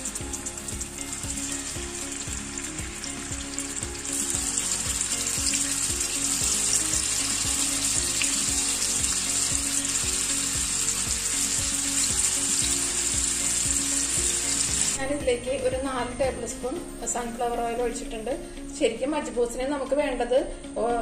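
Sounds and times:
chicken sizzling in hot oil: 0.0s - 15.1s
soft background music with beat: 0.0s - 21.0s.

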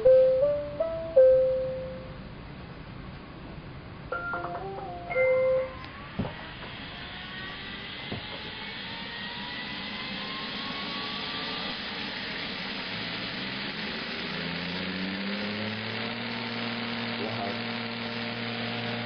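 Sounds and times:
motor spinning up tone: 4.4s - 19.0s
robot vacuum cleaner whirring: 5.6s - 19.0s.

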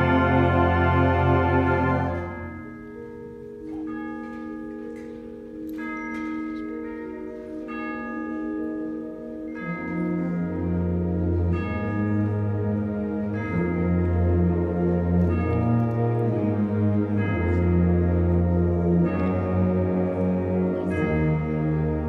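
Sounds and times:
concert band playing: 0.0s - 2.5s.

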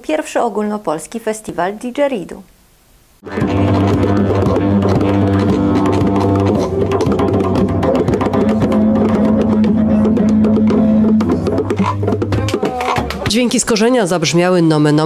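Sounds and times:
didgeridoos droning: 3.2s - 13.6s
djembe played by hand: 3.2s - 13.6s.

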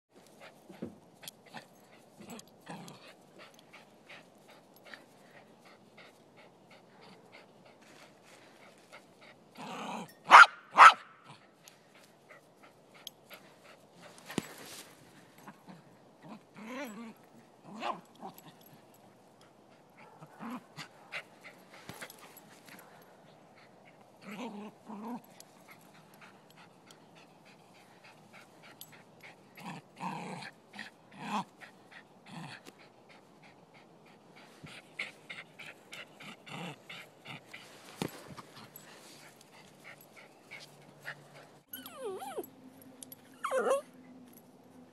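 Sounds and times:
dog barking: 10.3s - 11.1s
dog growling: 24.2s - 25.3s, 29.6s - 31.5s, 35.3s - 37.5s.

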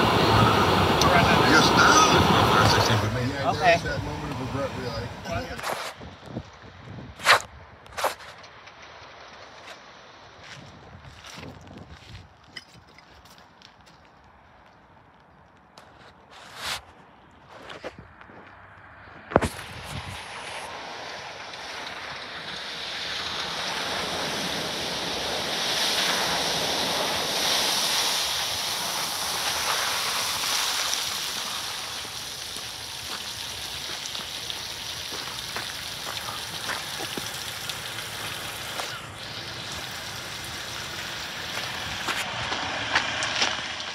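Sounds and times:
wind buffeting microphone: 0.0s - 8.0s, 10.5s - 12.4s, 17.9s - 20.5s
tyres splashing through puddles: 0.0s - 10.4s, 16.5s - 43.9s
gravel clicks: 1.0s - 43.9s.

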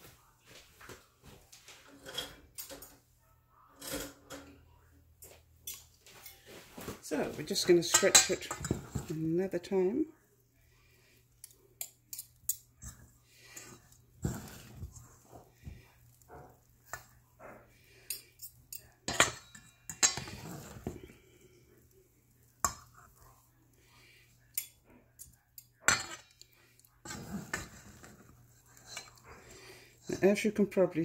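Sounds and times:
utensils scraping metal bowl: 7.4s - 9.6s, 11.4s - 30.6s.

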